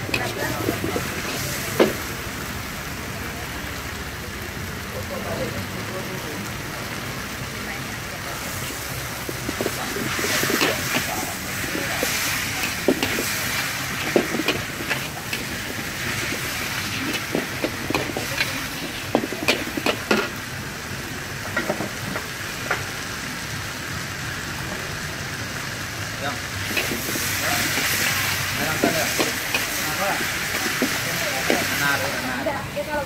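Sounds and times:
metal spatula scraping and clanking: 0.0 - 2.0, 9.2 - 20.4, 26.7 - 32.0
noodles sizzling in a wok: 0.0 - 33.0.

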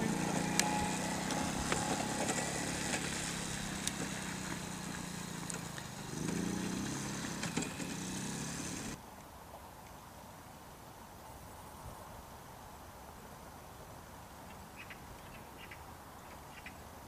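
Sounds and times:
quad bike engine running: 0.0 - 9.0.

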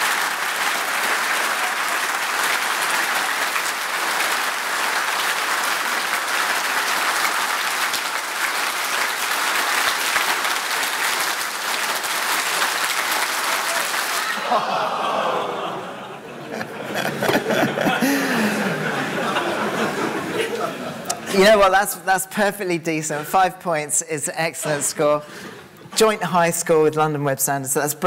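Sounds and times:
audience clapping: 0.0 - 21.3.

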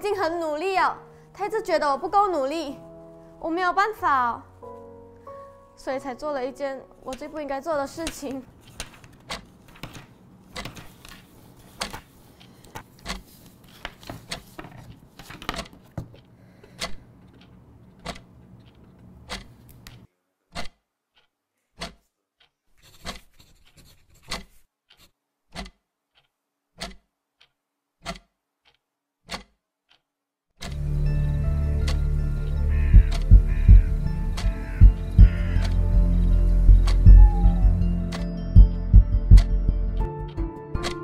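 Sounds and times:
sharp ticks: 31.8 - 36.1.

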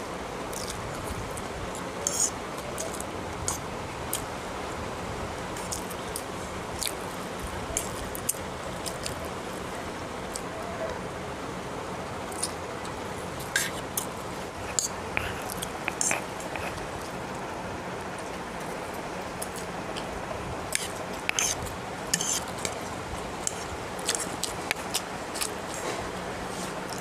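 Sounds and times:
steady hiss: 0.0 - 27.0
chewing and lip smacks: 0.5 - 4.3, 5.6 - 7.2, 7.8 - 9.3, 12.3 - 17.2, 20.7 - 22.8, 23.4 - 27.0
fork clicking and scraping on plate: 13.4 - 14.1, 14.7 - 16.8, 20.7 - 22.8.

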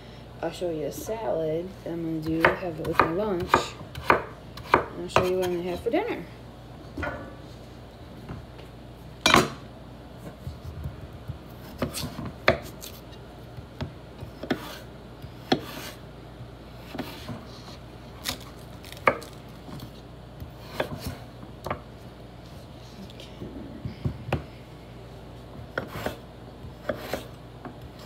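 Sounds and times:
knife slicing on wooden board: 14.4 - 14.9, 25.8 - 26.2, 26.8 - 27.3.

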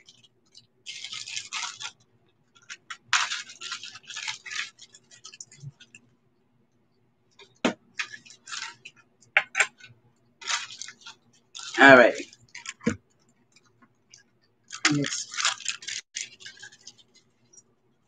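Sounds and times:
jewelry rustling and clinking: 7.4 - 17.7.

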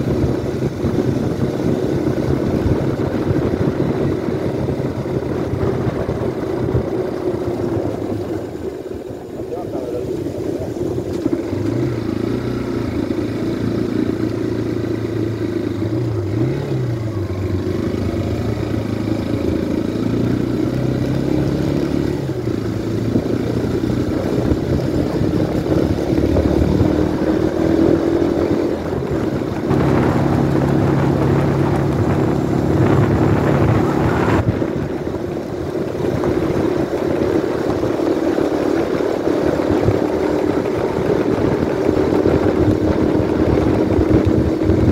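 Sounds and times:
motorcycle engine running: 0.0 - 44.9
loud rushing noise: 26.0 - 35.2.

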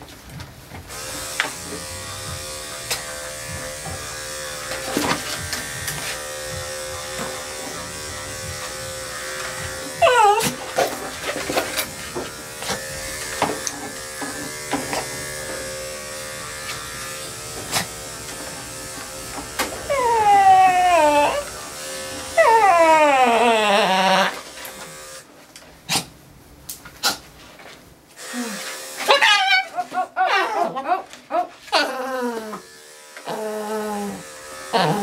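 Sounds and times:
electric clippers running: 0.8 - 22.8, 23.8 - 25.3, 28.2 - 29.9, 32.2 - 35.0
small dog yelping: 10.0 - 10.6, 19.9 - 21.5, 29.1 - 32.0.

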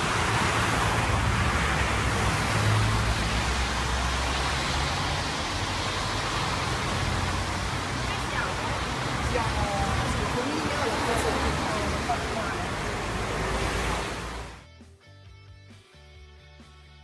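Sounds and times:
car engines rumbling: 0.0 - 14.6
tyres hissing on wet road: 0.0 - 14.6.

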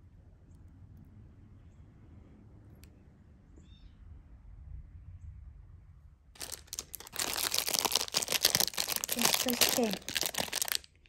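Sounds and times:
plastic bag crinkling: 6.4 - 11.0.

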